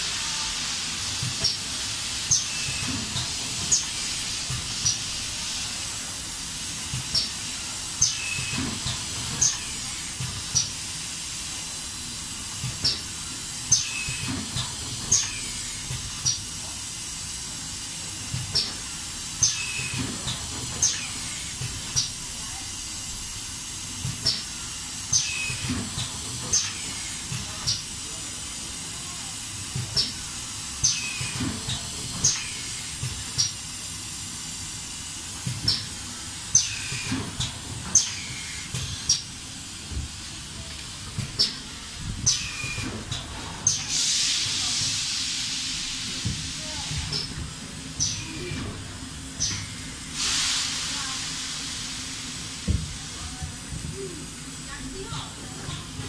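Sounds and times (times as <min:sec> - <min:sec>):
pneumatic hisses and clicks: 0:00.6 - 0:11.8, 0:23.8 - 0:28.0, 0:29.5 - 0:39.4, 0:41.1 - 0:48.8, 0:49.4 - 0:53.0.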